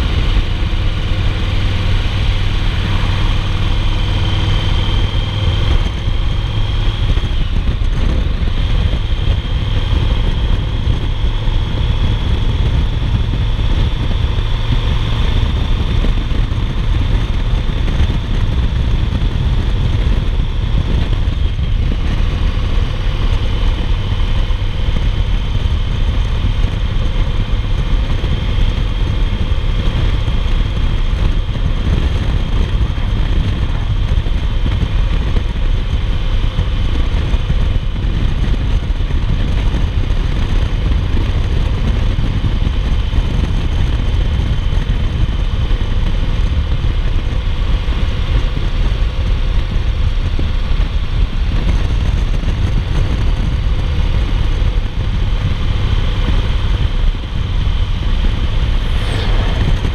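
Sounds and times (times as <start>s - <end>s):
motorcycle engine running: 0.0s - 59.9s
wind noise: 0.0s - 59.9s.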